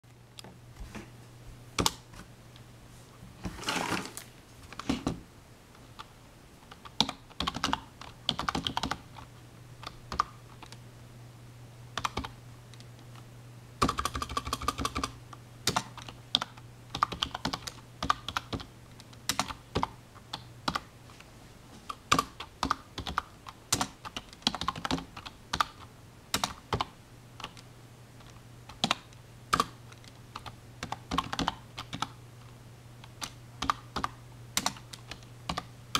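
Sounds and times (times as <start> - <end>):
steady low hum: 4.2 - 35.9
typing on computer keyboard: 6.7 - 10.8, 12.0 - 12.3, 13.8 - 20.8, 22.0 - 27.6, 28.7 - 32.2, 33.1 - 35.7.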